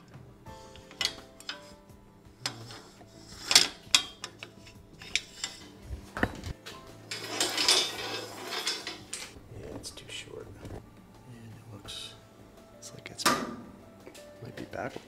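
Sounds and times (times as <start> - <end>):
rattling noise: 0.6 - 10.9.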